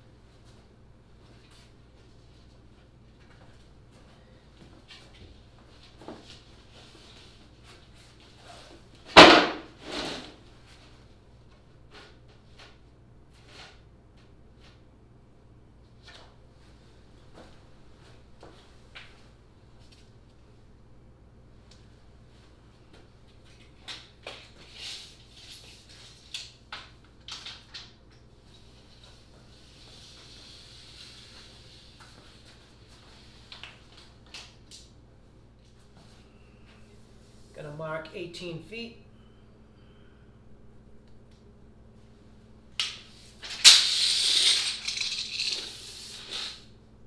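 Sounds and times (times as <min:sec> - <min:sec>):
steel tape measure clicks and rasps: 0:43.5 - 0:46.6.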